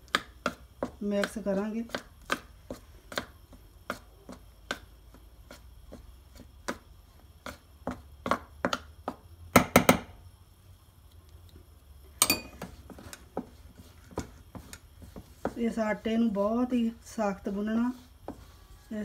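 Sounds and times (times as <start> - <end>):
spoon stirring flour in metal bowl: 0.0 - 9.2, 12.3 - 19.0
spoon clinking against bowl: 12.2 - 12.6.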